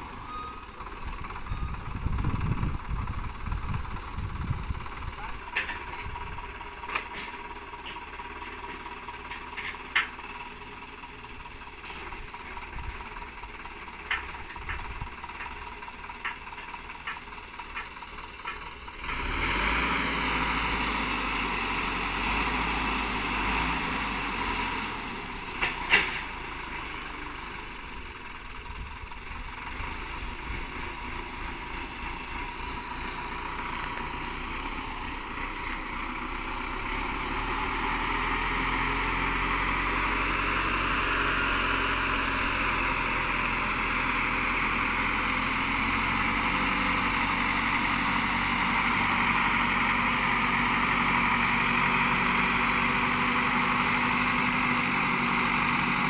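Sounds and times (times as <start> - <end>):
tractor diesel engine: 0.0 - 56.0
sharp metal clicks and knocks: 5.5 - 6.2, 6.8 - 10.2, 13.9 - 18.8.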